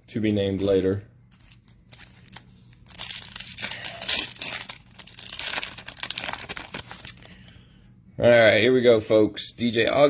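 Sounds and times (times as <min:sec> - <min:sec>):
foil wrapper tearing and crinkling: 0:01.4 - 0:07.4.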